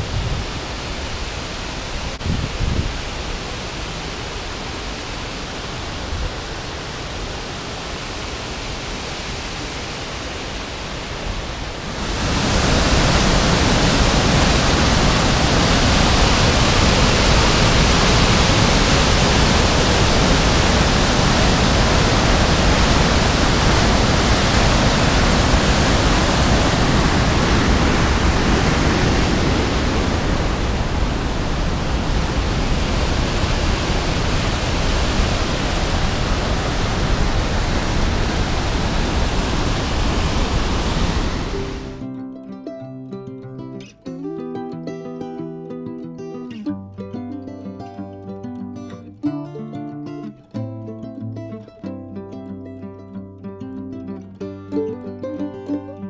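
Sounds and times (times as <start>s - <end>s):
waterfall rushing: 0.0s - 42.1s.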